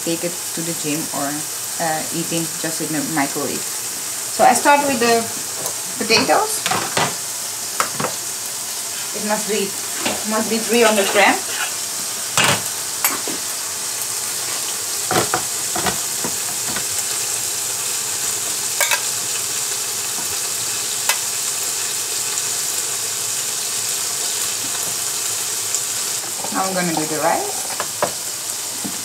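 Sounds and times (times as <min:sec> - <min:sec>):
steak sizzling in a pan: 0:00.0 - 0:29.0
metal spoon scraping saucepan: 0:09.9 - 0:11.8.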